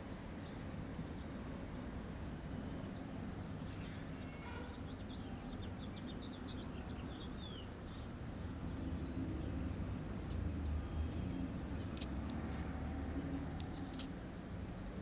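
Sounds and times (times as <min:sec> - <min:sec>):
low outdoor rumble: 0:00.0 - 0:15.0
small birds twittering: 0:02.6 - 0:12.0.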